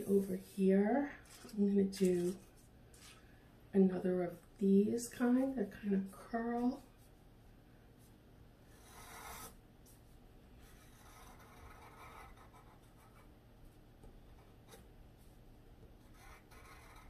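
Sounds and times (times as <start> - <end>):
pencil scratching on paper: 8.7 - 9.6, 10.6 - 13.3, 16.0 - 17.0.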